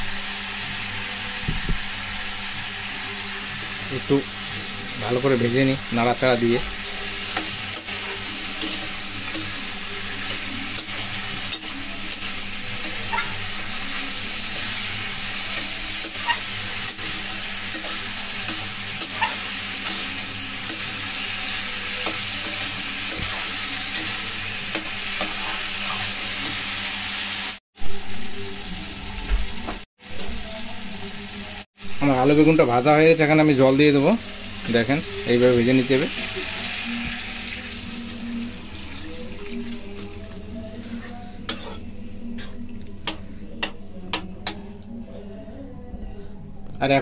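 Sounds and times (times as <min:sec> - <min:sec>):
vegetables sizzling in a pan: 0:00.0 - 0:42.7
metal spatula scraping pan: 0:41.0 - 0:43.7.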